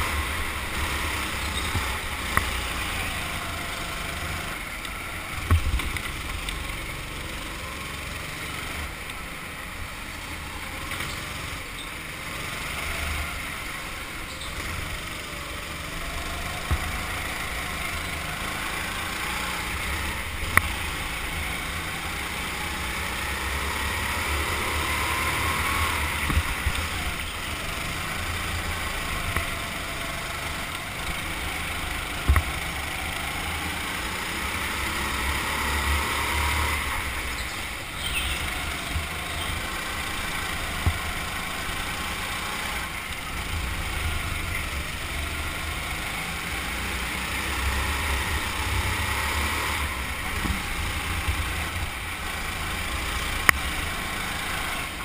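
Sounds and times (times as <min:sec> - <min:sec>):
go-kart engine running: 0:00.0 - 0:55.0.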